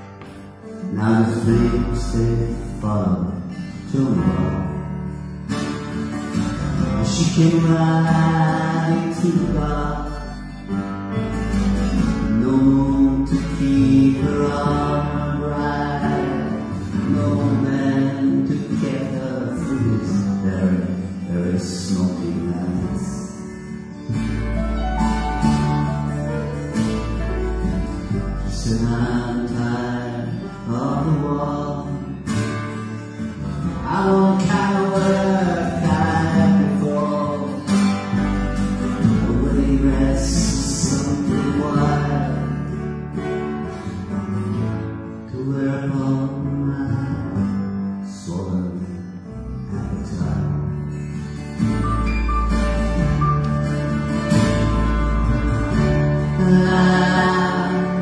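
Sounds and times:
acoustic guitars: 0:00.0 - 0:58.0
piano: 0:00.0 - 0:58.0
person singing: 0:07.0 - 0:10.4, 0:12.2 - 0:23.4, 0:33.8 - 0:37.8, 0:39.0 - 0:42.7, 0:56.0 - 0:58.0.

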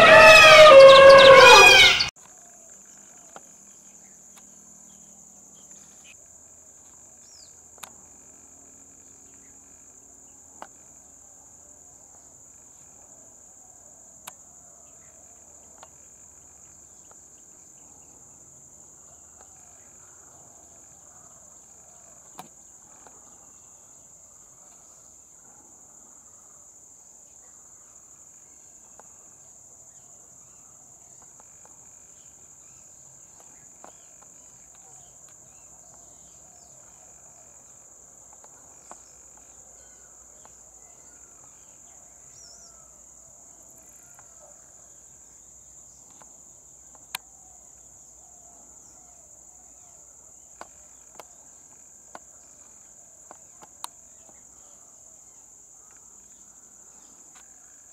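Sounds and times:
high-pitched insect drone: 0:00.0 - 0:02.1.

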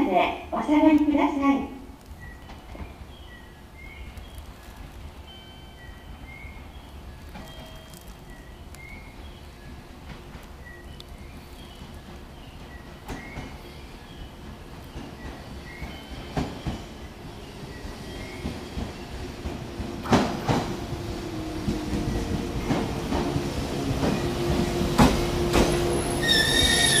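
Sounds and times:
steady train hum: 0:00.0 - 0:27.0
electric train approaching: 0:00.4 - 0:27.0
high-pitched squeal: 0:25.9 - 0:27.0.

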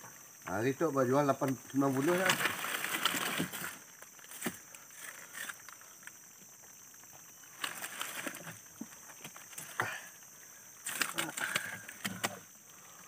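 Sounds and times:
hands rustling wet leaves: 0:01.4 - 0:06.2
sharp clicks of prawns: 0:10.8 - 0:12.4.

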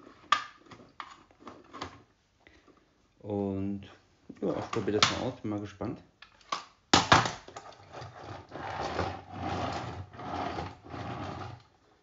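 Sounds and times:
vacuum wheels rolling and scraping: 0:07.5 - 0:12.0.

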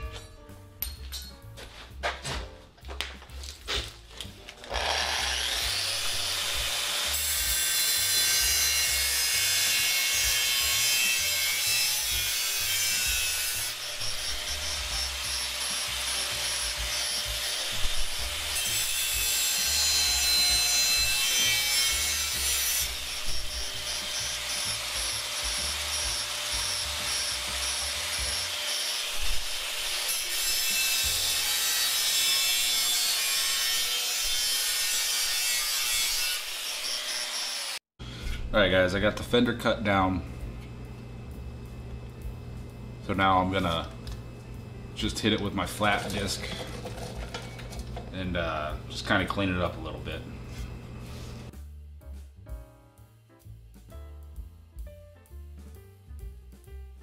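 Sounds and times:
angle grinder cutting steel: 0:04.6 - 0:37.9.

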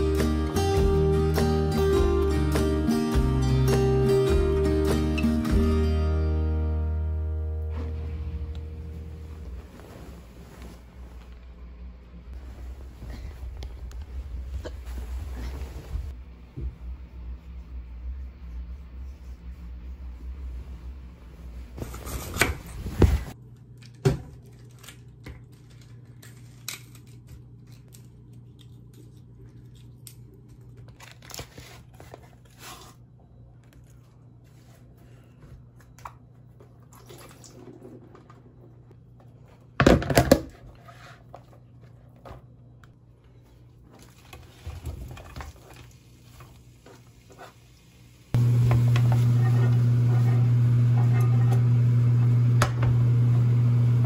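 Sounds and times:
kitchen appliance electric hum: 0:06.1 - 0:09.7, 0:15.9 - 0:54.0
bedding rustling: 0:07.6 - 0:16.2, 0:20.2 - 0:23.4
plastic packaging crinkling and tearing: 0:29.9 - 0:32.5.

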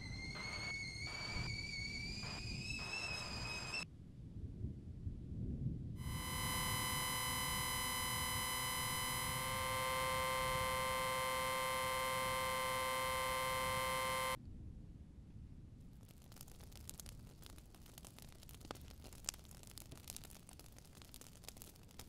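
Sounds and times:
electronic buzzing tone: 0:00.0 - 0:03.8, 0:06.0 - 0:14.4.

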